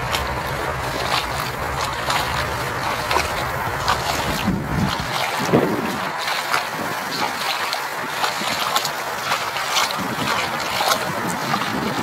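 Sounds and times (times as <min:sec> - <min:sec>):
boots splashing through water: 0:00.0 - 0:12.0.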